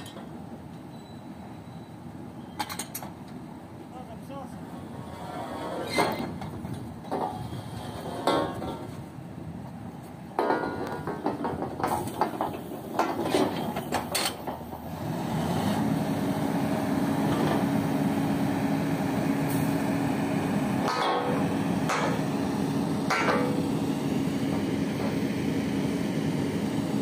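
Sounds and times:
rig engine and hoist running: 10.6 - 27.0
steel tubing clanking: 23.1 - 23.6.

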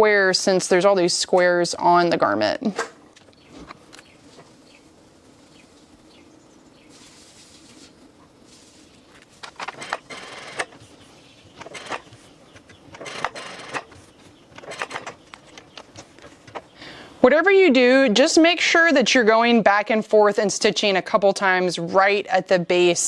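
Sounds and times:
sewing machine stitching: 9.5 - 10.8, 11.6 - 12.2, 12.9 - 14.0, 14.6 - 15.2.

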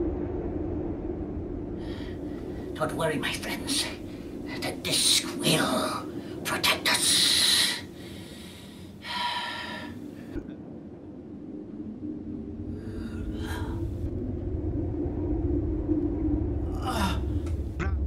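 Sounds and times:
deep rumble: 0.0 - 18.0
steady low drone: 0.0 - 18.0.

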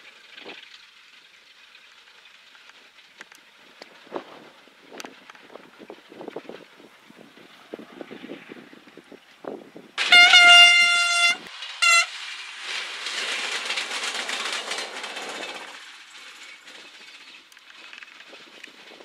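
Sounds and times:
train horn blasts: 10.0 - 12.2
railcar rushing past: 10.0 - 17.3.

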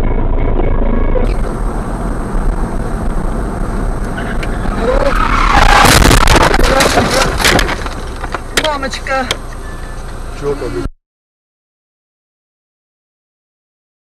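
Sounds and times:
tyres skidding: 0.0 - 10.9
road noise: 0.0 - 11.0
car crash clattering and banging: 4.2 - 8.8.

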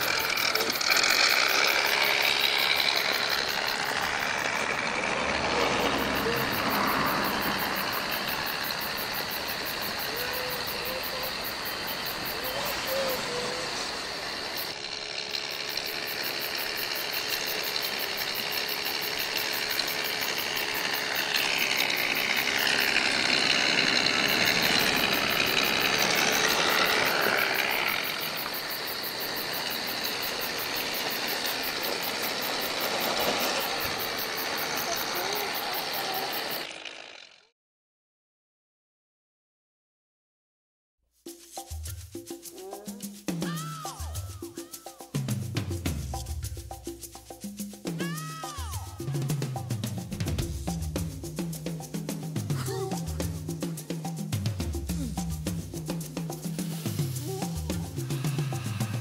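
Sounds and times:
toy engine sound through small speaker: 0.0 - 37.5, 42.4 - 45.2, 47.9 - 50.4, 51.8 - 54.2, 54.8 - 59.0.

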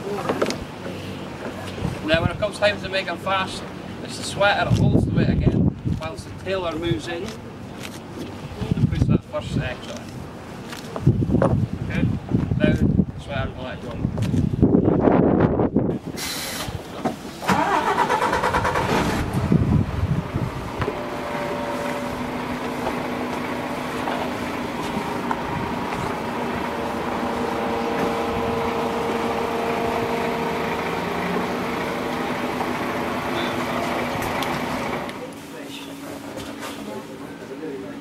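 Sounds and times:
boat engine starting and idling: 16.3 - 35.3.

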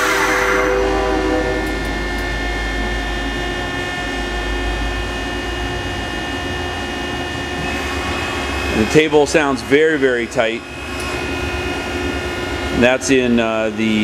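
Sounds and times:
machine table servo whine: 0.0 - 5.6.

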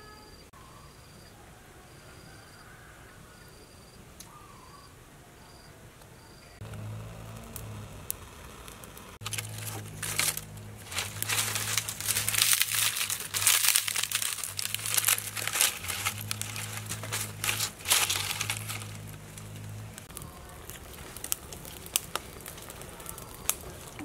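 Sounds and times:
kindling crackling in fire: 5.5 - 24.0
low hum: 6.6 - 24.0.

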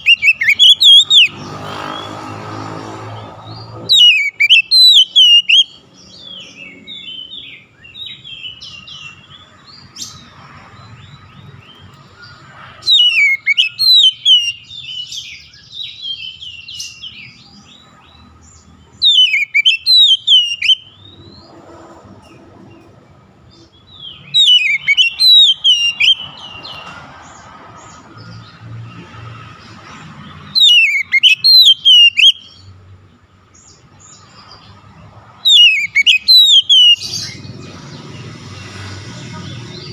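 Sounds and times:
bird chattering: 0.0 - 2.1, 3.5 - 7.3, 12.3 - 15.2, 18.9 - 21.0, 23.9 - 26.8, 30.5 - 32.6, 35.5 - 38.4
bird whistling song: 0.0 - 2.2, 3.5 - 10.2, 11.4 - 21.6, 23.5 - 26.9, 30.4 - 32.7, 35.4 - 38.2.

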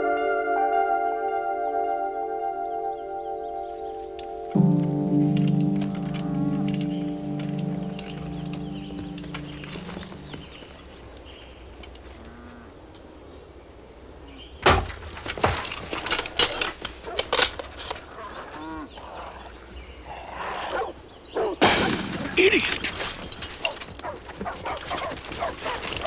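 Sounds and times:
background music: 0.0 - 10.6
loud crash: 21.6 - 23.0.

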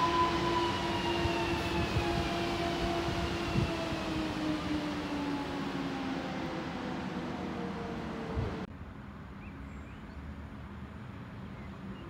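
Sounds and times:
train wheels rumbling on rails: 0.0 - 8.7.

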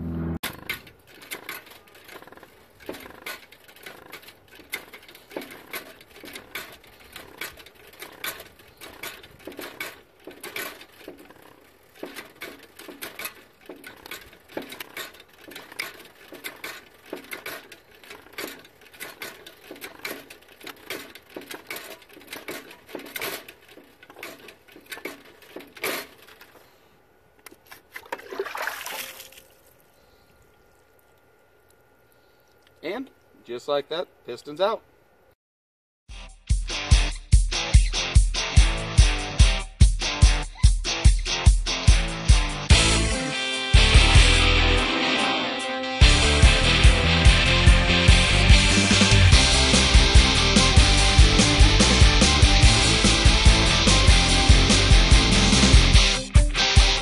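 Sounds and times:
hand hydraulic pump clicking: 0.4 - 26.7.

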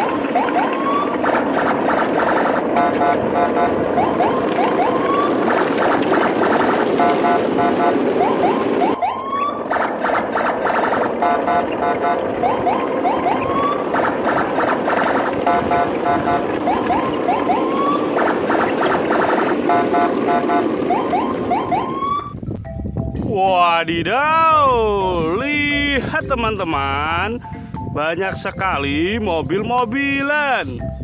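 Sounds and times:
steady noisy rumble: 0.0 - 31.0
electronic beeping tones: 2.8 - 5.4, 6.6 - 9.8, 11.2 - 22.8.

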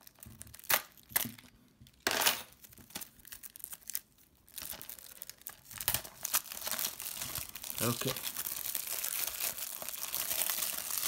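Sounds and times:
plastic crinkling: 0.0 - 11.0
plastic wrap tearing: 0.0 - 11.0.

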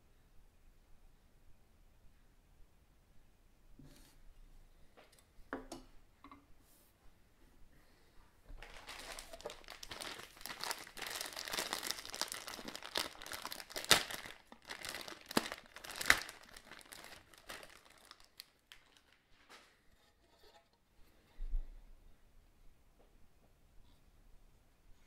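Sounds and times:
plastic bag crinkling: 8.6 - 19.8.

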